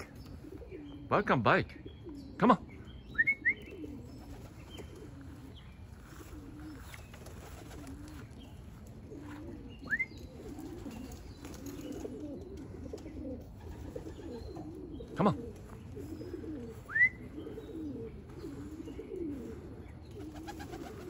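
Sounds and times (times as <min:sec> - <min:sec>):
pigeons cooing: 0:00.0 - 0:21.0.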